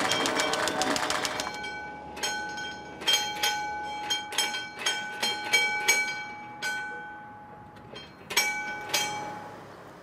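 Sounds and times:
railway signal bell ringing: 0.0 - 10.0.

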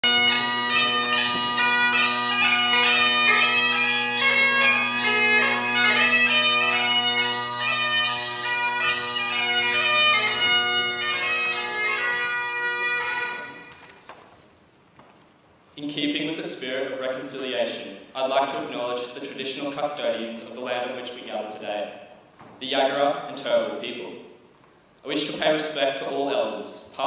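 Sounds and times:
bagpipe drones: 0.0 - 13.8
bagpipes playing a tune: 0.0 - 13.8.

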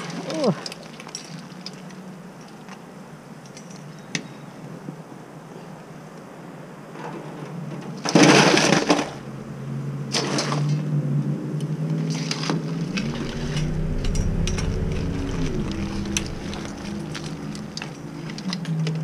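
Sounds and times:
low hum: 12.5 - 19.0.

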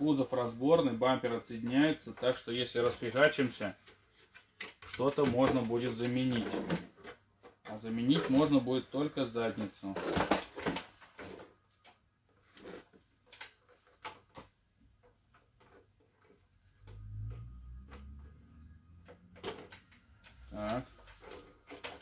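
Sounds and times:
plastic clicks and knocks: 19.0 - 22.0.

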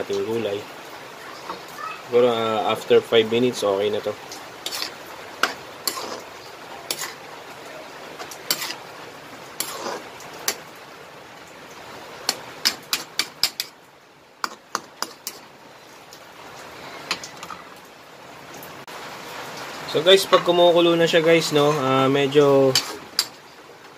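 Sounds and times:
steady background hiss: 0.0 - 23.9
metal spatula scraping wok: 4.6 - 7.3, 8.1 - 8.9, 9.6 - 10.7, 12.2 - 13.8, 14.4 - 15.5, 20.2 - 23.5.

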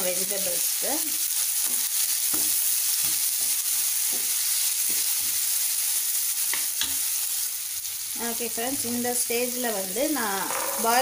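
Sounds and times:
vegetables sizzling in hot oil: 0.0 - 11.0
spatula scraping frying pan: 10.3 - 11.0.

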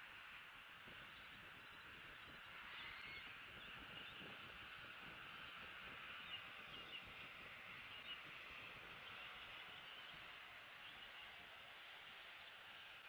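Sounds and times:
faint bird chirps: 1.0 - 4.3.

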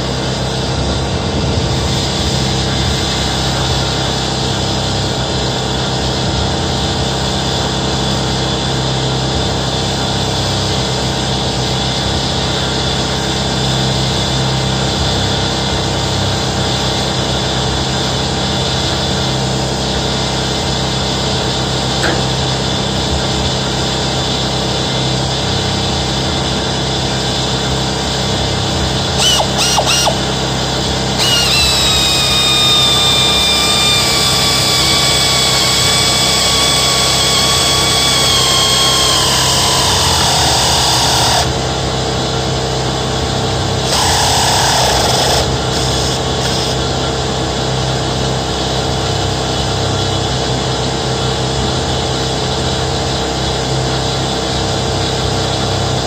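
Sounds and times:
higher whine falling in pitch: 29.0 - 41.9, 43.8 - 46.9
small motor whining: 29.1 - 41.7, 43.8 - 47.0.

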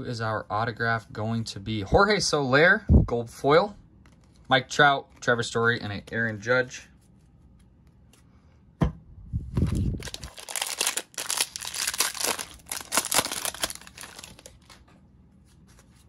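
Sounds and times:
foil wrapper tearing and crinkling: 9.6 - 14.8.

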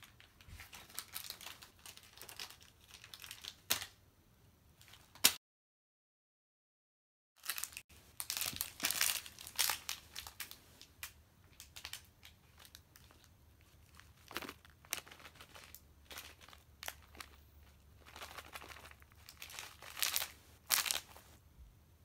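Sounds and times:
crinkling and rustling: 0.0 - 4.0, 7.4 - 21.4.

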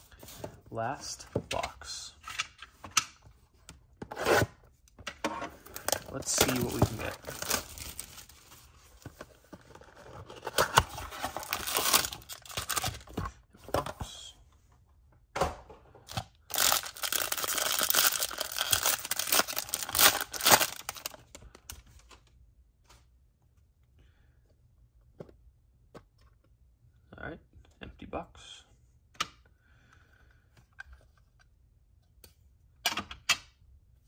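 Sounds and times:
foil wrapper tearing and crinkling: 6.4 - 8.3, 11.4 - 13.0, 16.5 - 21.2.

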